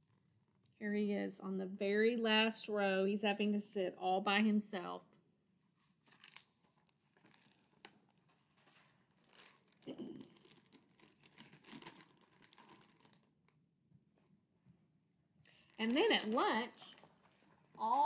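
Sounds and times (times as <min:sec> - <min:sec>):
book handling rustling: 0:05.8 - 0:13.3, 0:15.8 - 0:18.0.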